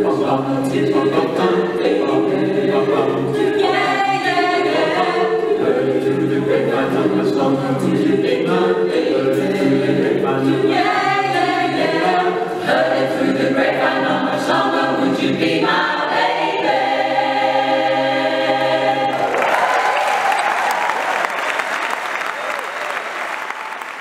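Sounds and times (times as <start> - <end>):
mixed choir singing a cappella: 0.0 - 19.8
audience applause: 19.1 - 24.0.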